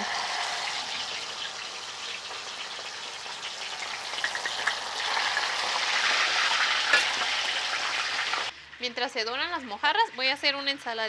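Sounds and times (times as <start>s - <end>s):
fish sizzling in hot oil: 0.0s - 8.5s.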